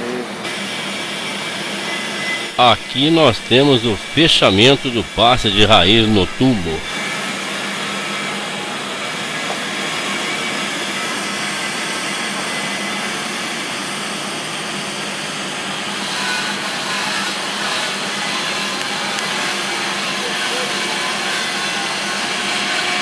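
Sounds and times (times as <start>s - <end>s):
faint hum: 2.6s - 6.9s.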